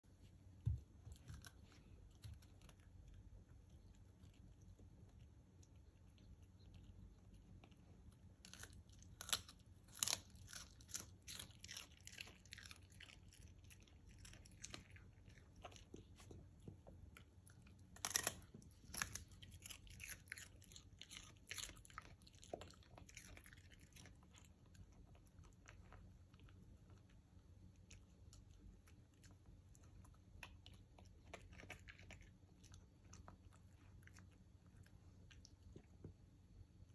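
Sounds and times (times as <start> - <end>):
dog crunching broccoli: 7.4 - 16.4, 17.1 - 27.2, 27.8 - 35.9.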